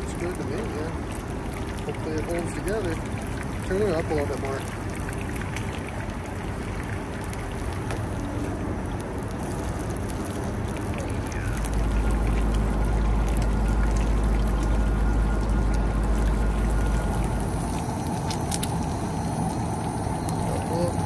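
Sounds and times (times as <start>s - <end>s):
patties sizzling in oil: 0.0s - 21.0s
low rumble: 4.6s - 21.0s.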